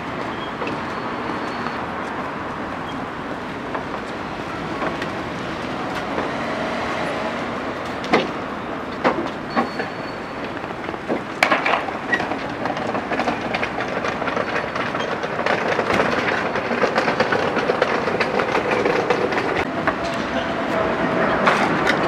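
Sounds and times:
wooden cart rattling over bricks: 0:10.5 - 0:20.5.

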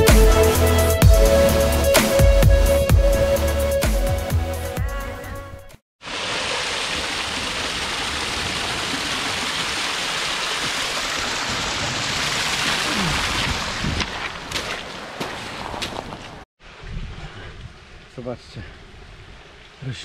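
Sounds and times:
small waterfall splashing: 0:06.0 - 0:15.2.

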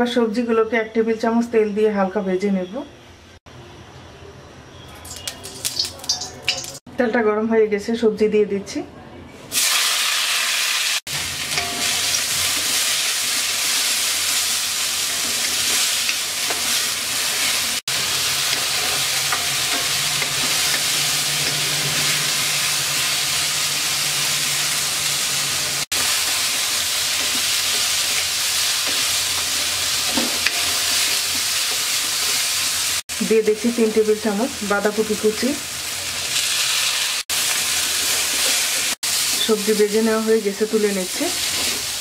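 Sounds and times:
vegetables sizzling in hot oil: 0:05.0 - 0:06.8, 0:09.5 - 0:42.0
spatula stirring in a wok: 0:11.2 - 0:23.2, 0:41.3 - 0:42.0.

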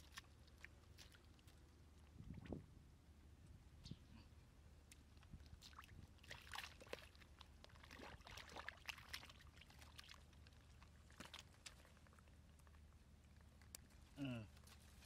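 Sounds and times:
small drips and clicks: 0:00.0 - 0:02.6, 0:04.8 - 0:14.8
water sloshing and splashing: 0:00.0 - 0:02.7, 0:04.9 - 0:13.7.

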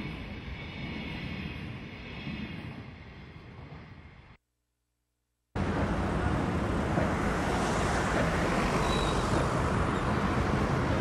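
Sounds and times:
cars passing on busy road: 0:05.6 - 0:11.0.

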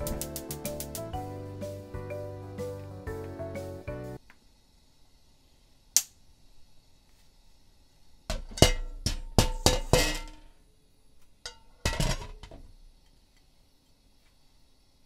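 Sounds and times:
metal cookware clinking: 0:08.3 - 0:10.5, 0:11.4 - 0:12.6.

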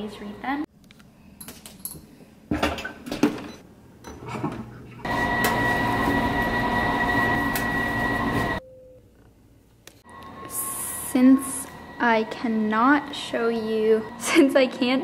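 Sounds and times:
washing machine hum and whine: 0:02.6 - 0:09.1, 0:10.0 - 0:15.0.

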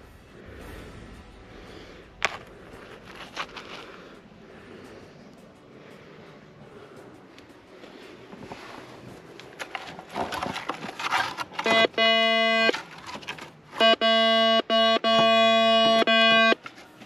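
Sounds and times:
hand tool scraping stony soil: 0:09.4 - 0:11.7
metal detector buzzy tone: 0:11.6 - 0:12.8, 0:13.8 - 0:16.6.

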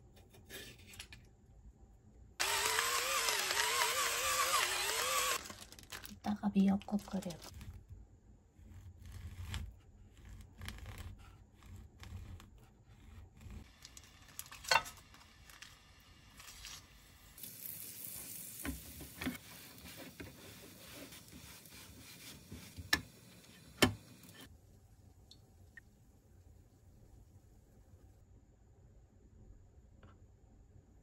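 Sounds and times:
food sizzling in a pan: 0:13.7 - 0:24.5.

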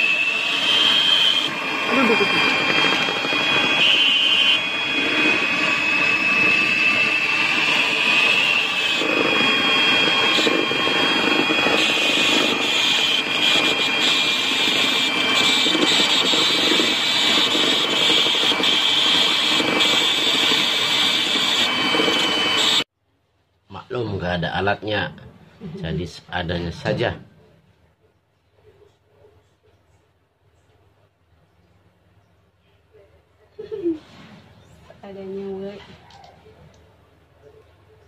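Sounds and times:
electric mixer motor whine: 0:00.0 - 0:22.9.

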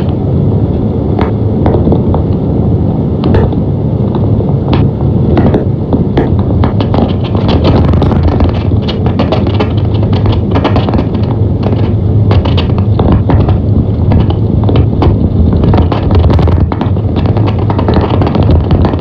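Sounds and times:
vehicle engine and tyres rumbling: 0:00.0 - 0:19.0
knocks and rattles: 0:01.2 - 0:02.3, 0:03.2 - 0:03.6, 0:04.2 - 0:19.0.

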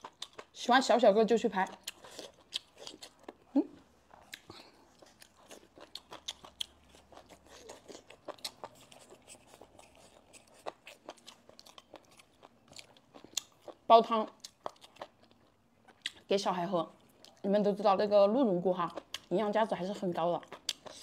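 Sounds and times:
crunchy chewing: 0:00.0 - 0:00.6, 0:01.6 - 0:16.3, 0:20.4 - 0:21.0.

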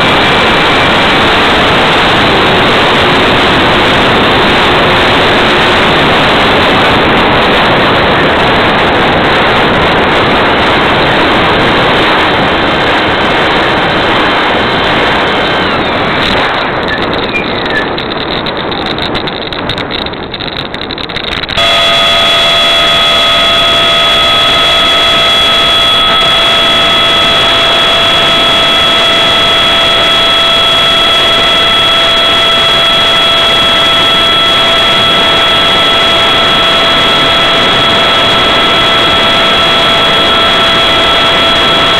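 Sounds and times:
ducted fan high whine: 0:00.0 - 0:41.9
electric ducted fan rushing air: 0:00.0 - 0:41.9
model plane rolling on runway: 0:00.0 - 0:41.9.

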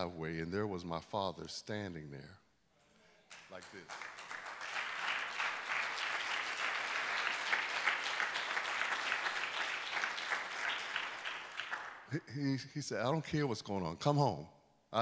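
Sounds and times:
congregation applauding: 0:03.3 - 0:12.2.

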